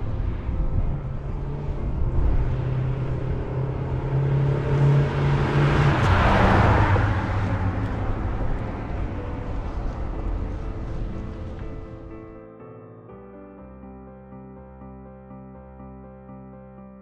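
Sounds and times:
car engine passing by: 0:00.0 - 0:12.1.

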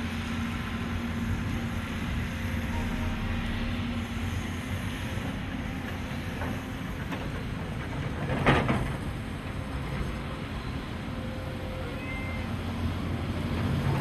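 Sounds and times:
heavy machinery rumble: 0:01.2 - 0:10.7.

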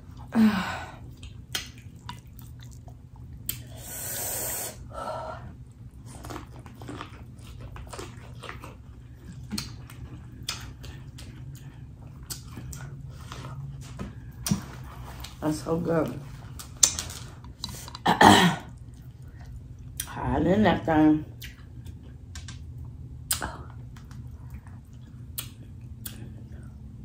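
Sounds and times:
person chewing corn on the cob: 0:01.0 - 0:03.7, 0:05.6 - 0:15.4, 0:22.8 - 0:27.0
wet mouth smacks and clicks: 0:01.5 - 0:02.2, 0:25.3 - 0:26.2.

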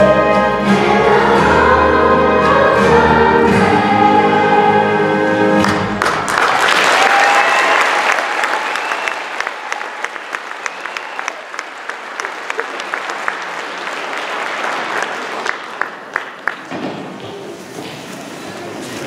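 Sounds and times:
audience applauding: 0:05.6 - 0:16.9.

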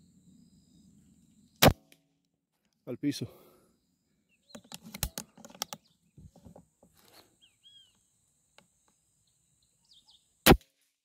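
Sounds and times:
bird chirping: 0:00.0 - 0:01.6, 0:03.6 - 0:10.4
rifle clicks and rattles: 0:04.6 - 0:05.8.

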